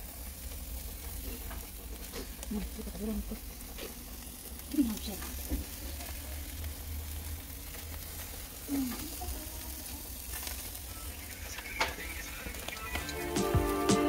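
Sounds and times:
meat sizzling over charcoal: 0.0s - 14.0s
music: 12.8s - 14.0s.

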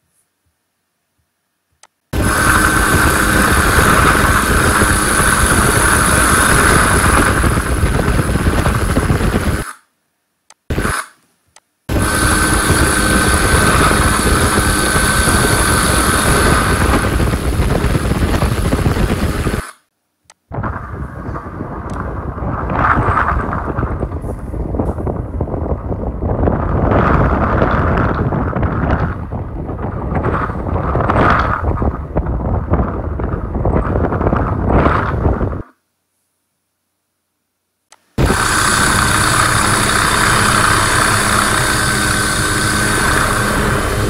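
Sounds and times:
rushing noise: 2.1s - 9.8s, 10.7s - 11.2s, 11.9s - 19.9s, 20.5s - 35.6s, 38.2s - 44.0s
helicopter rotor and engine rumble: 2.2s - 9.6s, 11.9s - 19.6s, 38.2s - 44.0s.

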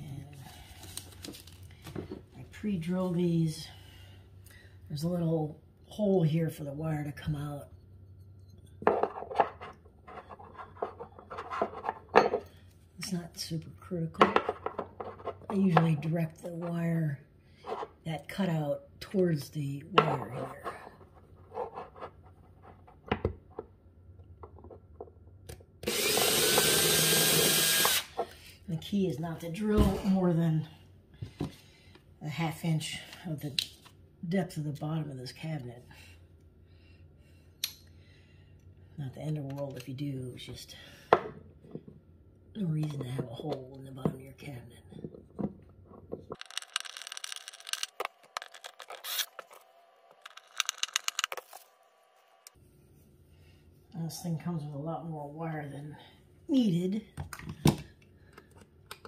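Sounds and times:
rustling handling noise: 0.4s - 2.3s
cordless drill drilling into wood: 25.8s - 28.2s.

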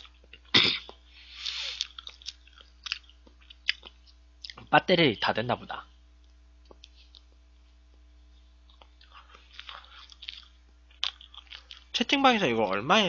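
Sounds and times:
mouth chewing sounds: 0.0s - 4.7s, 6.6s - 11.9s.

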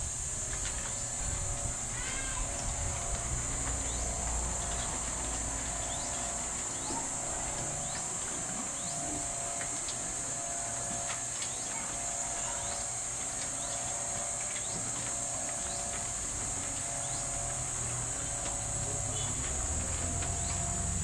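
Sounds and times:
insect chorus drone: 0.0s - 21.0s.

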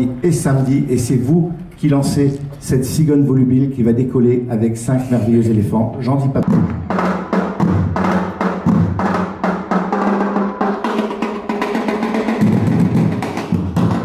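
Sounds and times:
drums beating quick rhythm: 6.4s - 14.0s.

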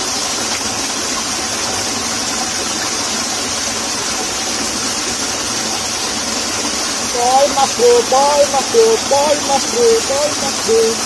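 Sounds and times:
water rushing in a ditch: 0.0s - 11.0s.

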